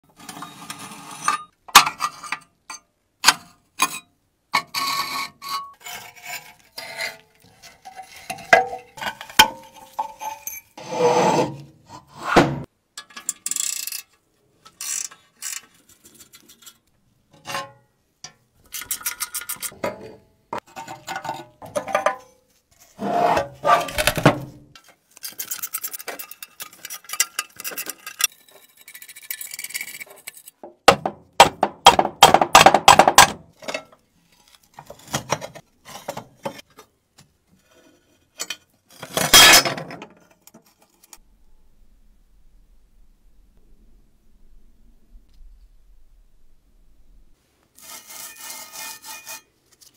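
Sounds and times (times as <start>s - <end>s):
tools scraping metal: 3.8s - 12.4s, 18.6s - 30.6s, 47.8s - 49.9s.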